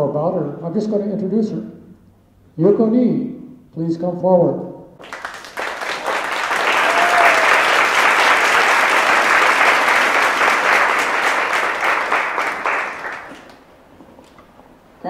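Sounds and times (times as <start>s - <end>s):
audience applauding: 5.0s - 13.7s.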